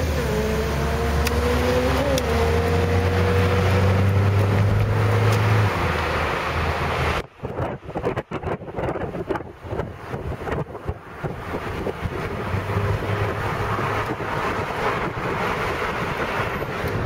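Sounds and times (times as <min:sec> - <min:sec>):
car engine and road noise: 0:00.0 - 0:17.0
wind buffeting microphone: 0:00.0 - 0:17.0.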